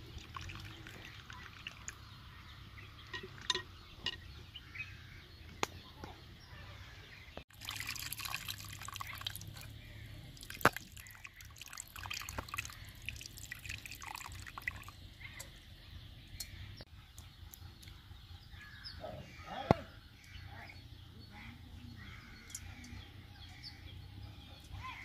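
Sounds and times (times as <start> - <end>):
water dribbling and splashing: 0.0 - 4.2, 7.5 - 15.7.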